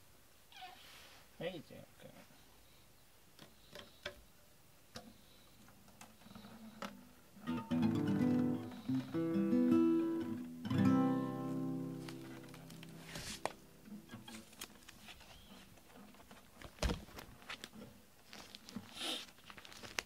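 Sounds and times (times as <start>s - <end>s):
acoustic guitar chords strummed: 7.4s - 14.1s.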